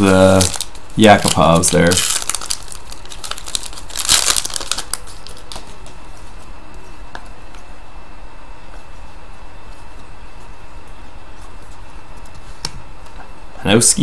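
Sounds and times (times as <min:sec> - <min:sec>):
wrapper crinkling: 0:00.0 - 0:05.9.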